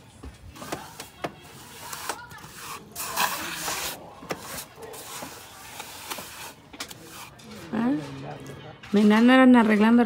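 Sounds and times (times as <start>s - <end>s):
trowel scraping render on wall: 0.6s - 7.8s.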